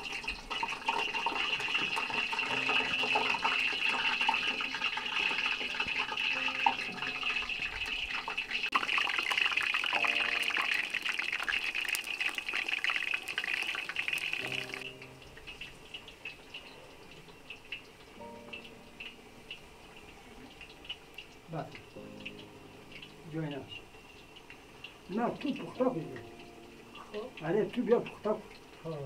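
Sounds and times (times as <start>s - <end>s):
potatoes deep-frying in oil: 0.0s - 29.0s.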